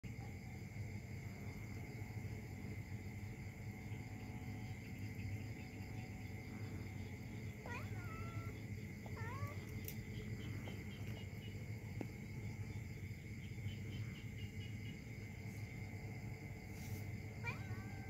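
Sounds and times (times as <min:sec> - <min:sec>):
insects chirring: 0:00.0 - 0:18.0
low background hum: 0:00.0 - 0:18.0
kitten mewing: 0:07.6 - 0:09.9, 0:17.4 - 0:18.0.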